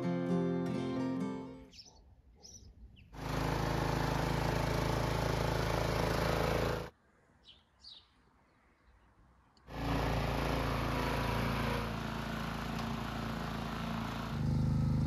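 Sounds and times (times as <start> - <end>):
birds chirping: 1.6 - 3.2, 7.2 - 9.6
small excavator engine running: 3.1 - 6.9, 9.6 - 15.0.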